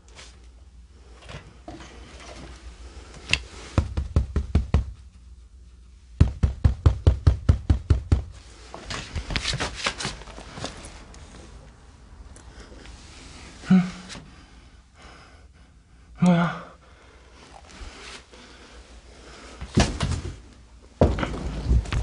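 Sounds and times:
rapid knocking: 3.8s - 5.0s, 6.2s - 8.4s.

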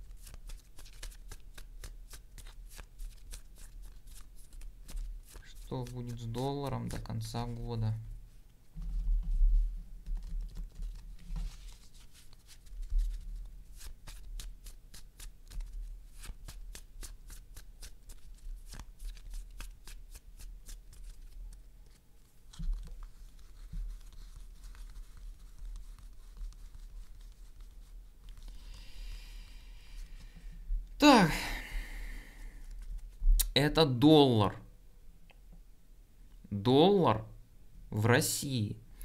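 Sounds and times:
playing cards being shuffled: 0.1s - 7.3s, 10.1s - 28.8s.

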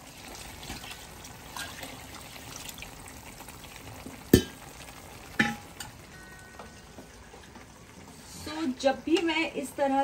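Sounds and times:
water pouring into a pot: 0.0s - 6.1s.

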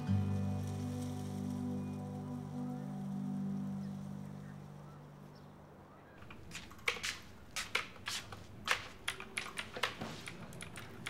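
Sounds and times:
background music: 0.0s - 5.9s
typing on computer keyboard: 6.3s - 11.0s.

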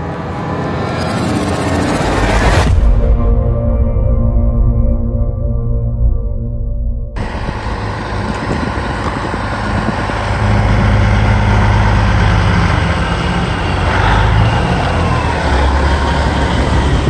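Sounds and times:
road noise: 0.0s - 2.9s, 7.2s - 17.0s
vehicle engine drone: 0.0s - 17.0s.

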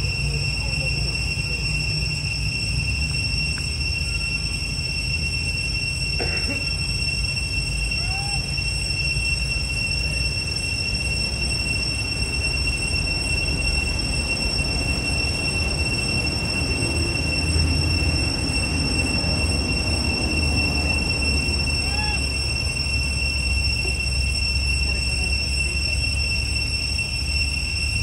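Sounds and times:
high-pitched drone: 0.0s - 28.0s.

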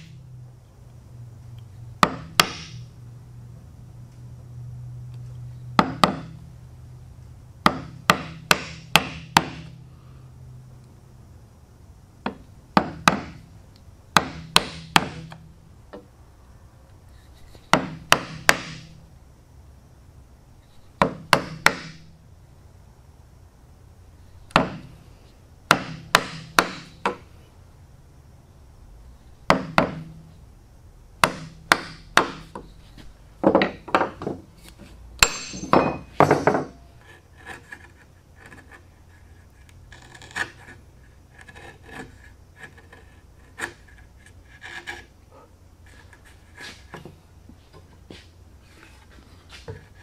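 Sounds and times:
chisel paring wood: 2.0s - 2.9s, 5.8s - 6.4s, 7.6s - 9.8s, 12.2s - 13.4s, 14.2s - 16.1s, 17.7s - 19.0s, 21.0s - 22.1s, 24.5s - 24.9s, 25.7s - 27.2s, 29.4s - 30.2s, 31.2s - 32.7s, 35.2s - 45.1s
mallet striking chisel: 2.0s - 2.9s, 5.8s - 6.4s, 7.6s - 9.7s, 14.2s - 15.4s, 17.7s - 19.0s, 21.0s - 22.1s, 25.7s - 27.2s, 31.2s - 32.6s, 35.2s - 36.9s.

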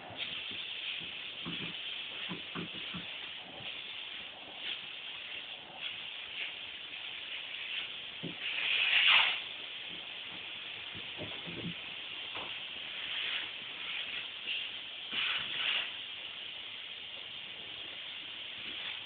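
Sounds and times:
soft bumps: 9.9s - 12.6s.

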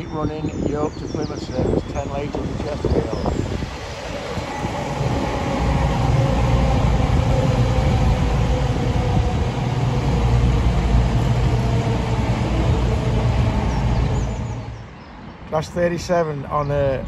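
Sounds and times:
diesel train passing: 0.0s - 17.0s.

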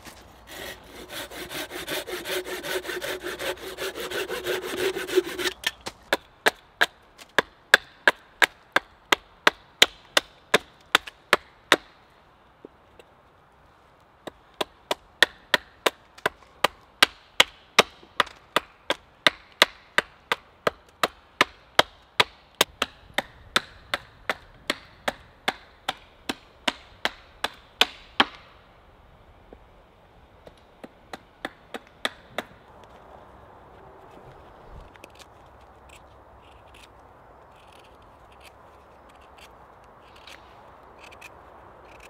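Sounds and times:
hatchet chopping wooden stick: 0.5s - 11.9s, 14.2s - 28.4s, 30.4s - 32.6s.

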